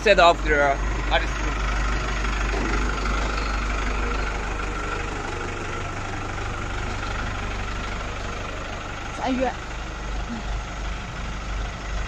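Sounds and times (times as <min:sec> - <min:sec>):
truck engine idling: 0:00.0 - 0:12.0
high whine: 0:00.7 - 0:09.0.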